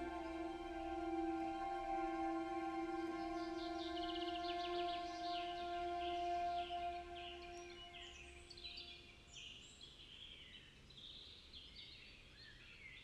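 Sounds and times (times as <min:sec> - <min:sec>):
soft held music chord: 0:00.0 - 0:09.2
birds chirping: 0:00.0 - 0:10.4.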